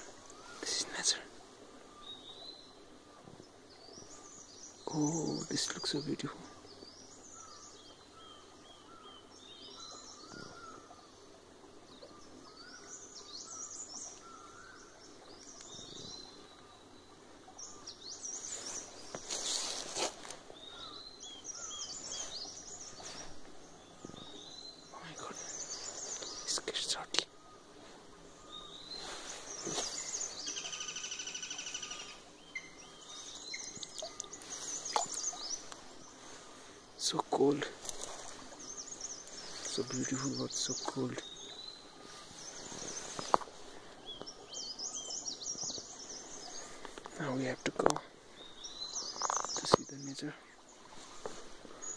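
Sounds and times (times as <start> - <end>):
faint background hiss: 0.0 - 51.9
small birds chirping and singing: 0.0 - 51.9
bird chirps: 28.4 - 36.2, 48.4 - 50.3.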